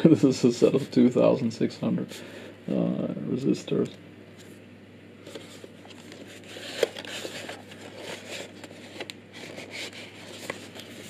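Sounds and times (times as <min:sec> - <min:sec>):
package rustling: 0:05.3 - 0:11.0.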